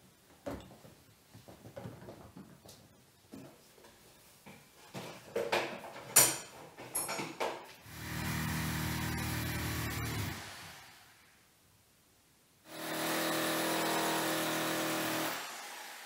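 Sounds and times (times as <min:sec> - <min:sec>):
drill motor running: 0:07.9 - 0:11.0, 0:12.7 - 0:16.0.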